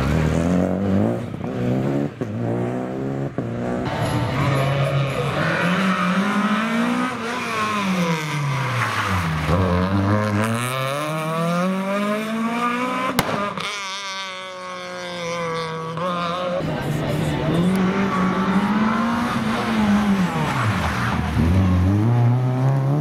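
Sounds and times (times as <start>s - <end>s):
rally car engine revving: 0.0s - 23.0s.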